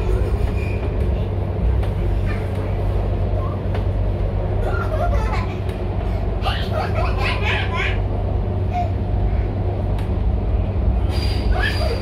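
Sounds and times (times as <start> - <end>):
train rumbling inside carriage: 0.0 - 12.0
children laughing and chattering: 1.0 - 9.7.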